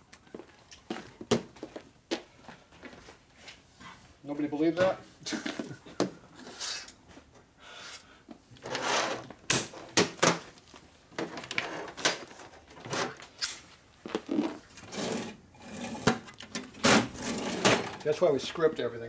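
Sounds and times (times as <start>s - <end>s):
metal tools clinking on workbench: 12.7s - 13.7s.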